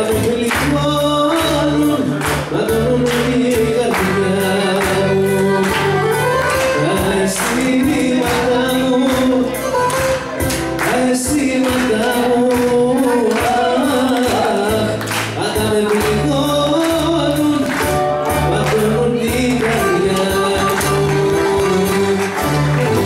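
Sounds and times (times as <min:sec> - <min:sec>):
dance music with singing: 0:06.8 - 0:23.0.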